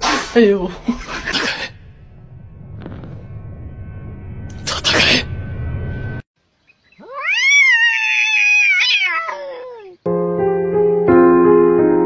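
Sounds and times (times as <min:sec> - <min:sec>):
piano music: 0:01.5 - 0:06.2, 0:10.1 - 0:12.0
cat meowing: 0:07.0 - 0:10.0.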